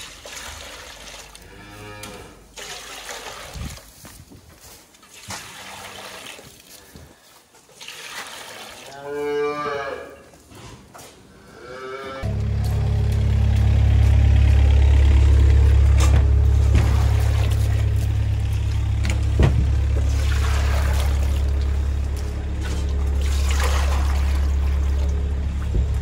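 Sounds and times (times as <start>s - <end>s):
cattle mooing: 8.9s - 10.3s, 11.4s - 13.0s.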